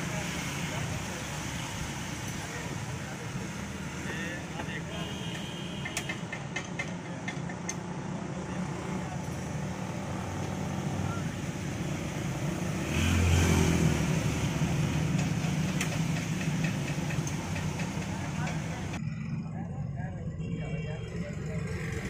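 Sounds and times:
traffic engine hum: 0:00.0 - 0:22.0
vehicle passing on wet road: 0:11.9 - 0:16.2.

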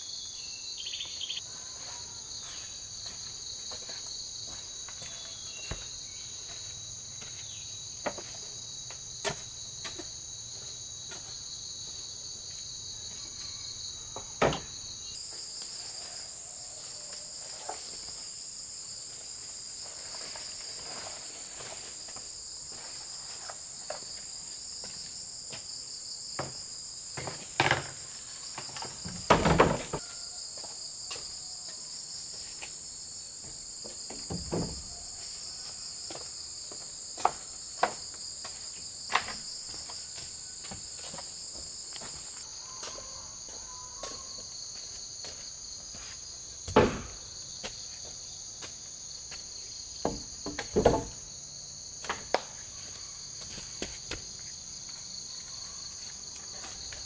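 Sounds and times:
high-pitched insect chorus: 0:00.0 - 0:57.0
bamboo poles knocking: 0:46.7 - 0:47.2, 0:50.0 - 0:51.2.

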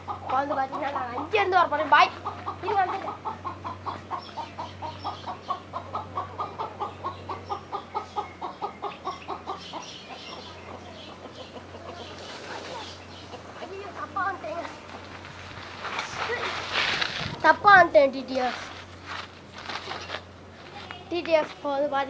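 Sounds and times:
chicken clucking: 0:00.0 - 0:15.1.

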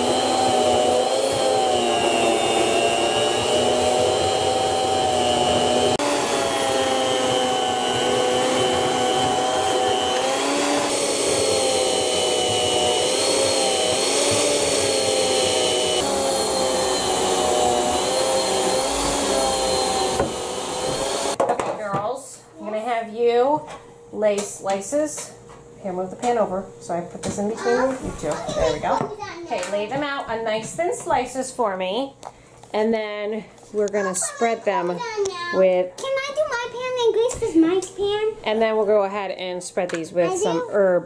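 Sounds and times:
electric food slicer whining: 0:00.0 - 0:21.4.

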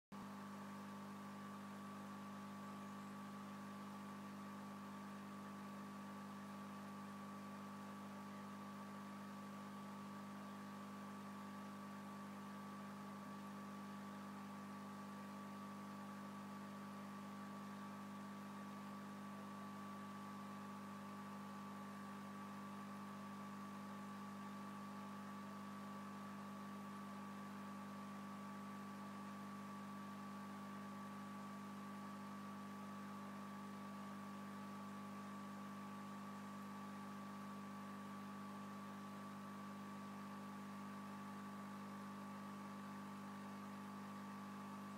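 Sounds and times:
aquarium filter pump hum: 0:00.1 - 0:44.9.

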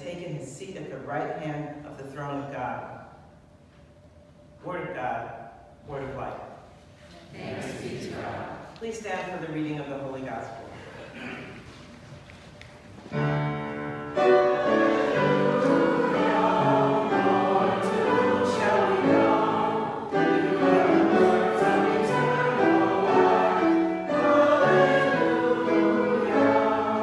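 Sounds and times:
congregation singing: 0:07.3 - 0:08.7, 0:13.1 - 0:27.0.

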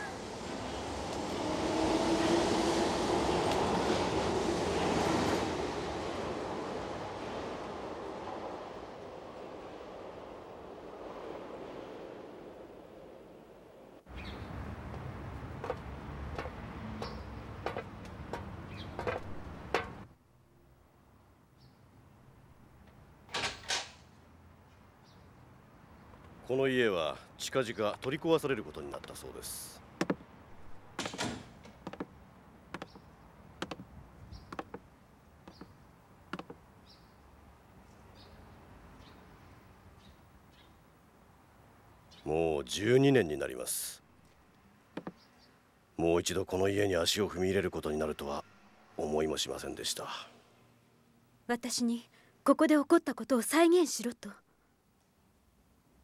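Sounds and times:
wash of noise: 0:00.0 - 0:14.0
footsteps on wooden floorboards: 0:14.8 - 0:20.0, 0:30.0 - 0:30.3, 0:31.0 - 0:36.6, 0:45.0 - 0:45.2.

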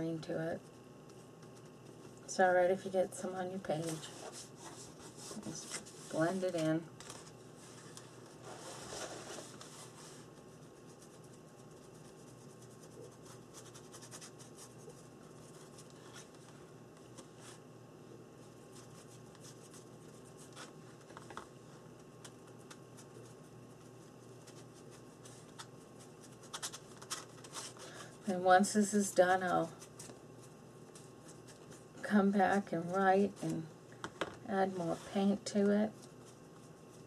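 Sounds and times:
paintbrush rubbing on paper: 0:03.7 - 0:06.7, 0:07.6 - 0:16.4, 0:18.4 - 0:21.0, 0:22.4 - 0:27.8, 0:28.7 - 0:33.6, 0:34.7 - 0:37.0.

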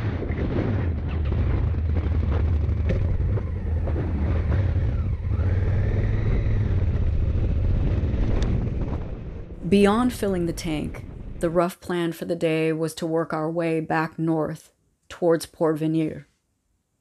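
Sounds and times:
motorcycle engine drone: 0:00.0 - 0:11.4
wind rush: 0:00.0 - 0:11.6.

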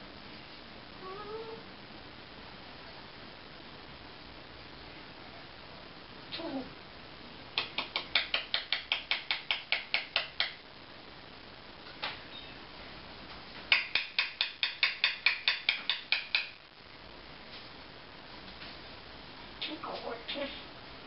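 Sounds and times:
parrot making sharp clicks: 0:07.6 - 0:10.6, 0:13.7 - 0:16.6.

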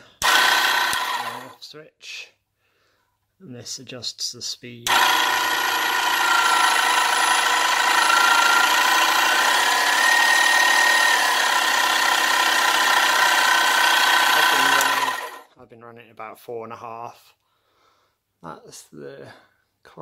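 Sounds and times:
power saw whining: 0:00.0 - 0:01.6, 0:04.9 - 0:15.5.

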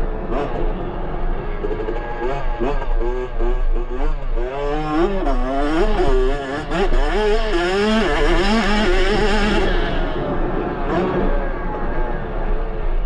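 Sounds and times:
two-stroke engine revving: 0:01.5 - 0:10.2.

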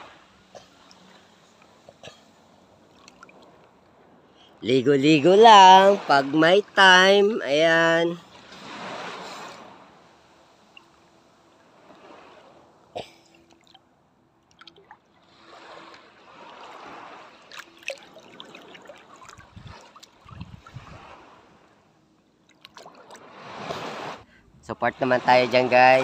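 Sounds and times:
small water splashes: 0:00.0 - 0:03.8, 0:08.2 - 0:24.2
water sloshing and trickling: 0:00.0 - 0:24.3.

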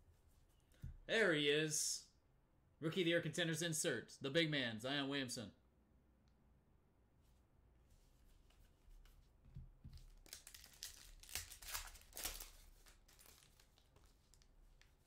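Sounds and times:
foil wrapper crinkling and tearing: 0:10.1 - 0:14.6.

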